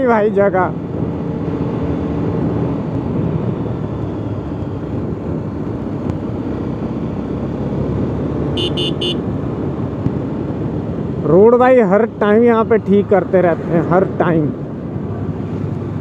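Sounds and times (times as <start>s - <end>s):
wind and road noise: 0.0s - 16.0s
motorcycle engine running: 8.5s - 10.1s
vehicle horn beeps: 8.6s - 9.2s.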